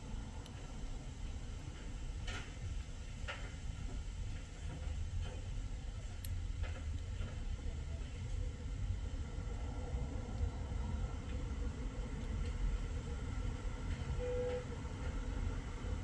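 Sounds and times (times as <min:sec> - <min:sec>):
road traffic rumble: 0:00.0 - 0:16.0
short tone: 0:14.2 - 0:14.7.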